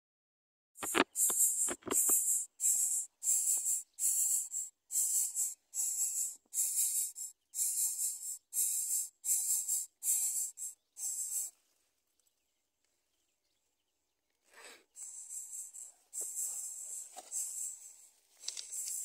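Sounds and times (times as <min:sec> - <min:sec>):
nestling birds begging calls: 0:00.8 - 0:11.6, 0:14.9 - 0:19.0.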